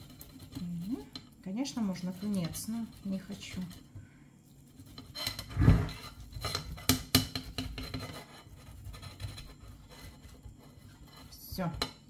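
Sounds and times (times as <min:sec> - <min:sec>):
potato rasped on metal grater: 0:00.0 - 0:03.8, 0:04.6 - 0:11.7.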